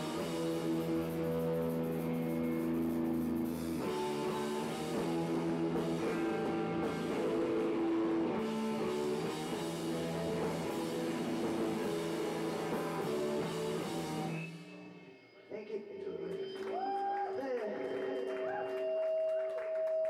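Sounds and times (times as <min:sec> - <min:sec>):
drum kit: 0:00.0 - 0:14.8
guitar chords: 0:00.0 - 0:15.2.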